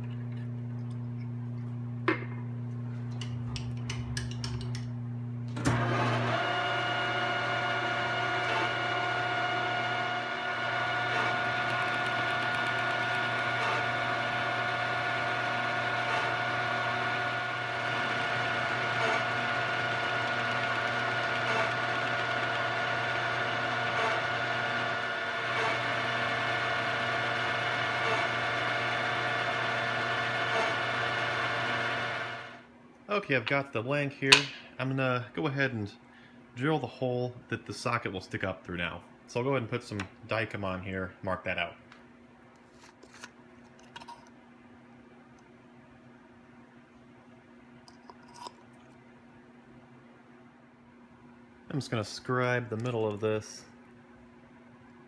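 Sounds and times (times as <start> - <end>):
end mill cutting aluminum whine: 5.6 - 32.6
milling machine spindle humming: 5.6 - 32.6.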